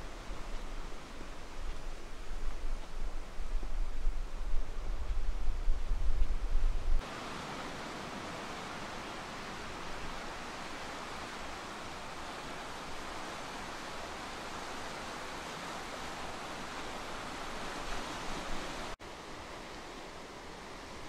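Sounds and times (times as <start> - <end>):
surf washing against rocks: 7.0 - 19.0.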